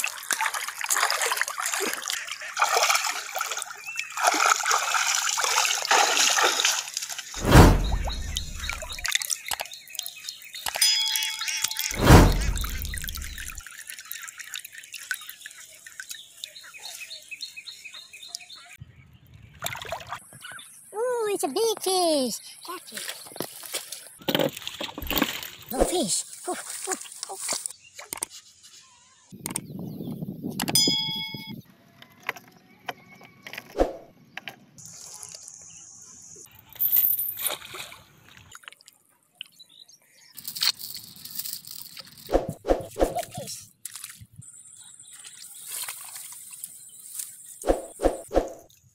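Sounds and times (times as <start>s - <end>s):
water splashing and trickling: 0.0s - 28.4s, 36.4s - 48.9s
low rumble: 7.4s - 9.0s, 11.9s - 13.6s
water dripping: 7.9s - 16.6s.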